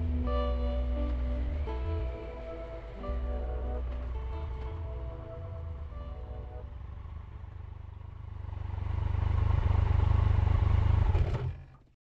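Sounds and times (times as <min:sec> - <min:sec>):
background music: 0:00.0 - 0:07.7
motorcycle engine riding along: 0:00.0 - 0:11.7.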